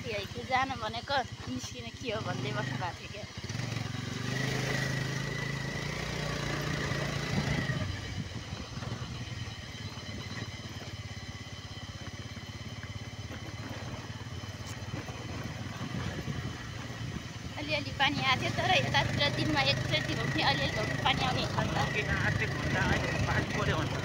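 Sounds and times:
motorcycle engine running: 0.0 - 24.0.

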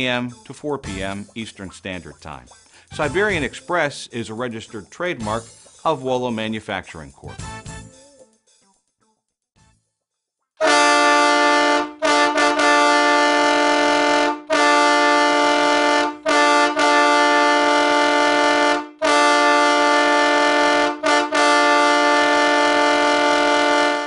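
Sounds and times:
air horn chord blasts: 10.6 - 24.0.

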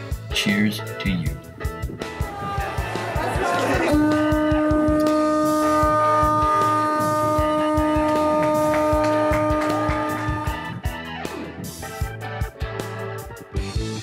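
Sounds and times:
conch shell horn note: 3.8 - 10.9.

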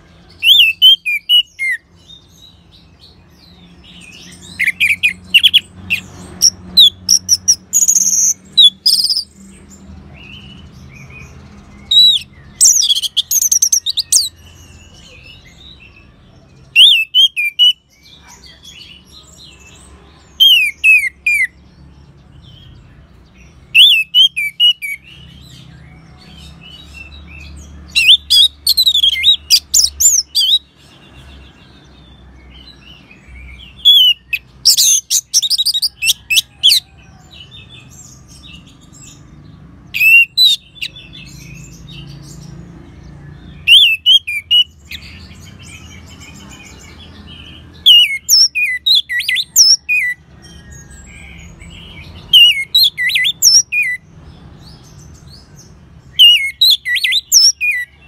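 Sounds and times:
thrush singing whistled notes: 43.5 - 46.2, 52.2 - 54.0, 56.1 - 58.0.

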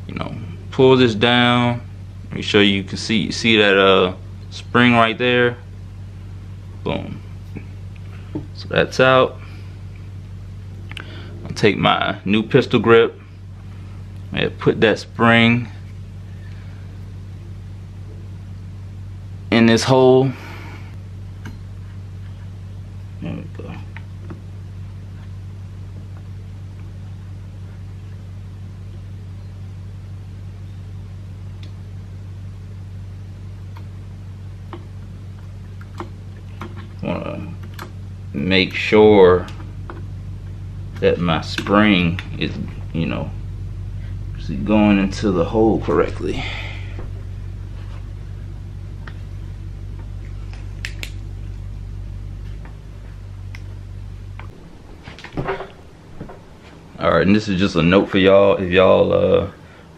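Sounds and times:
steady low hum: 0.0 - 59.9.

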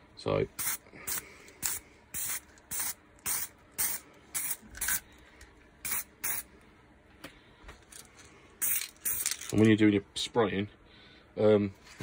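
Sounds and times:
spray paint can hissing: 0.6 - 5.0, 5.8 - 6.5, 8.6 - 9.4.

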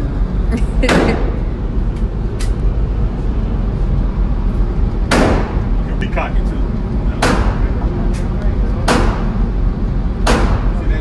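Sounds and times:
steady low rumble: 0.0 - 11.0
loud pistol shot: 5.1 - 5.6, 10.2 - 10.7.

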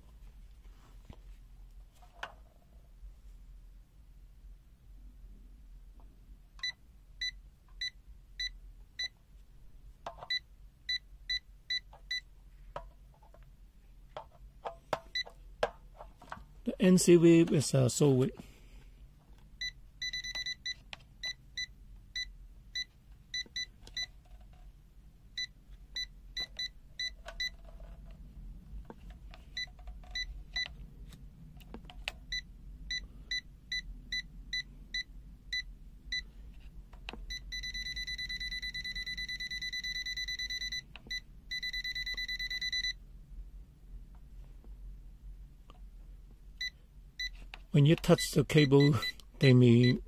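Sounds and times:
voltage detector beeping: 19.6 - 24.1, 37.3 - 43.0, 48.6 - 50.0.

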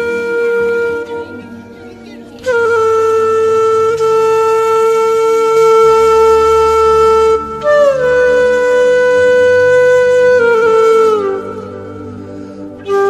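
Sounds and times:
soft low accompaniment: 0.0 - 13.0
wind instrument melody: 0.0 - 13.0.

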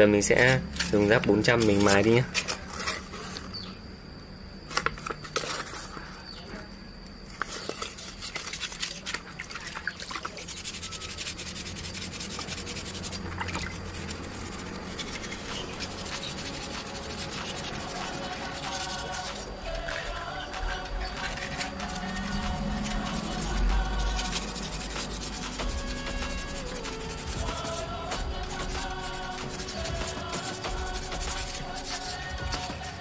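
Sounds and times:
sandpaper rubbing on metal: 0.4 - 3.4, 10.2 - 33.0.

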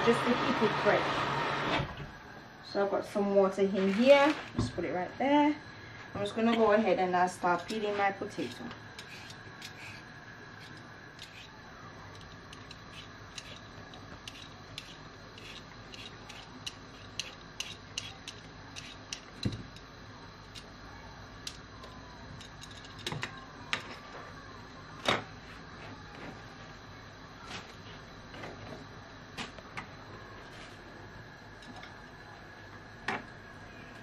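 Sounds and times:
peeler scraping potato skin: 7.6 - 19.3.

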